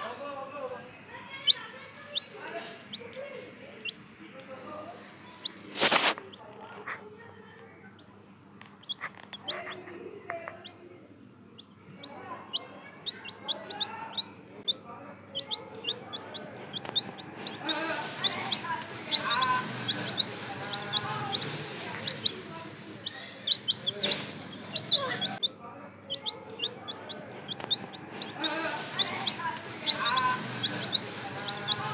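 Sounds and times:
baby chickens peeping: 1.2s - 4.6s, 5.2s - 7.0s, 7.9s - 10.8s, 11.6s - 31.9s.

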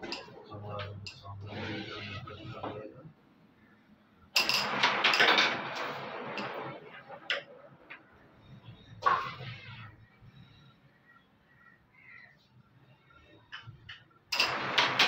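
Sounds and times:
coins clicking and sliding: 14.3s - 15.0s.

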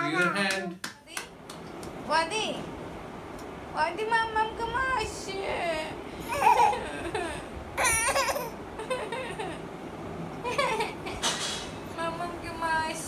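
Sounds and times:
toddler squealing and babbling: 7.8s - 8.6s.

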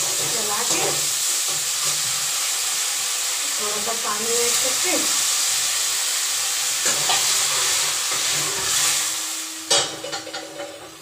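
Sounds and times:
tomatoes sizzling in hot oil: 0.0s - 11.0s.

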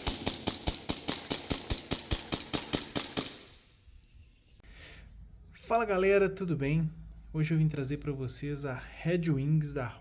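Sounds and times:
airsoft pistol rapid shots: 0.0s - 3.7s.

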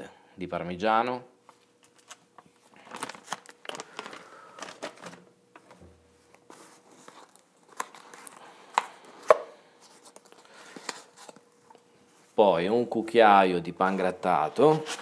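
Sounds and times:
food packaging rustling: 1.8s - 5.8s.

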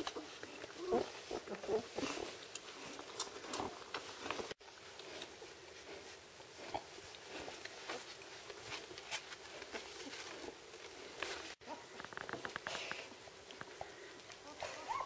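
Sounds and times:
puppies rustling on blanket: 7.3s - 11.7s.

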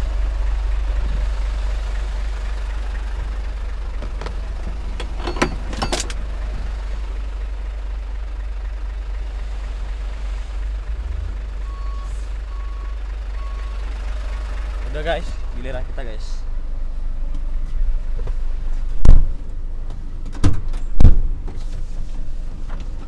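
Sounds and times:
truck engine idling: 0.0s - 20.2s
reversing beeper: 11.6s - 13.8s.

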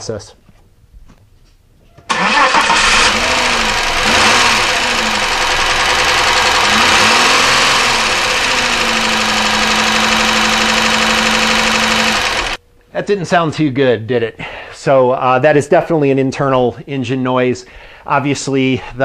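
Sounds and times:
car engine running: 2.1s - 12.6s.

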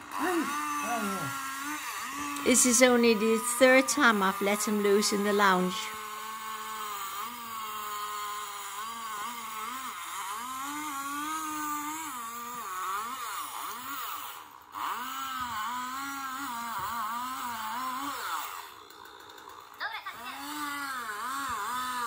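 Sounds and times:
machine engine running: 0.0s - 10.6s.

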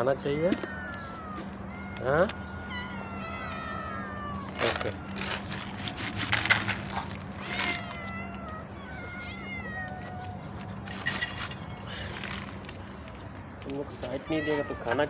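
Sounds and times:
cats meowing: 0.0s - 15.0s
scratchy rustles: 4.5s - 8.2s.

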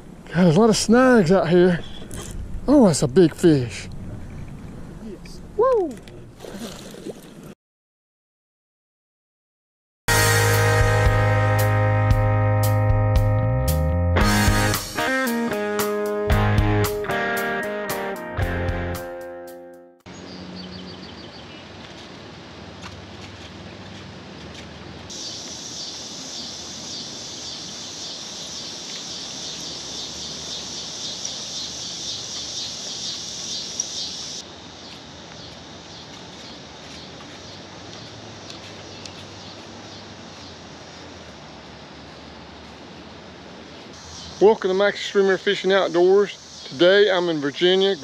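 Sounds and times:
low background hiss: 0.0s - 4.0s, 25.2s - 48.0s
insects buzzing: 25.1s - 48.0s.

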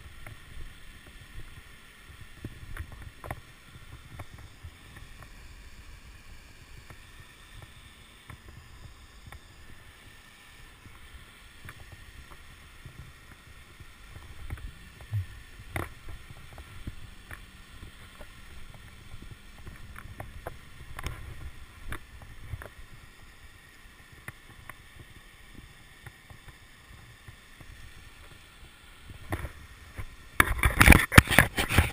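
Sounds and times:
climbing gear clicks and scrapes: 2.1s - 23.1s, 29.1s - 31.9s.

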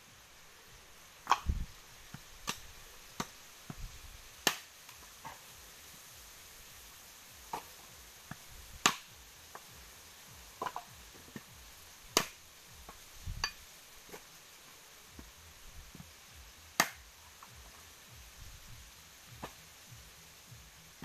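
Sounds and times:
machete cracking coconuts: 1.2s - 1.6s, 2.4s - 3.4s, 4.4s - 4.7s, 8.8s - 9.6s, 12.1s - 13.6s, 16.8s - 17.0s.

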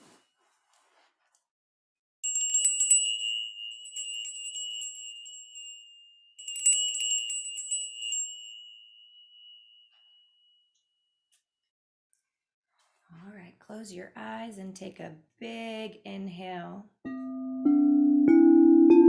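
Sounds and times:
chime jingling and ringing: 2.2s - 10.6s.

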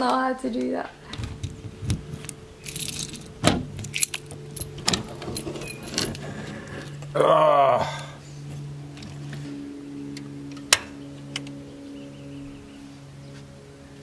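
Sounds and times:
low steady hum: 0.0s - 14.0s
keys jangling on key ring: 2.6s - 6.2s.

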